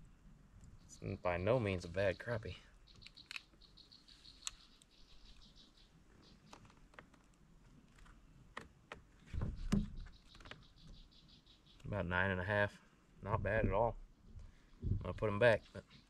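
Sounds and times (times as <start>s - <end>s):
rapid high chirping: 2.8s - 6.5s.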